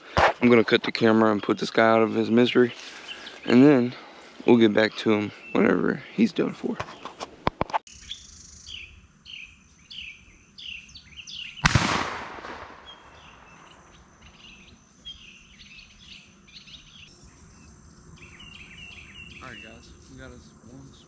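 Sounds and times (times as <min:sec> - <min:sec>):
small bird chirping: 0:07.9 - 0:11.7, 0:12.8 - 0:21.0
rifle shot with echo: 0:11.6 - 0:13.8.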